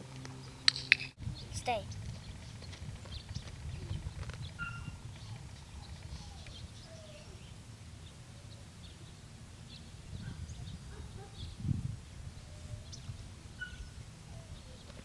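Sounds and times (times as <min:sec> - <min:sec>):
low outdoor rumble: 0:00.0 - 0:15.0
bird chirps: 0:00.4 - 0:11.6.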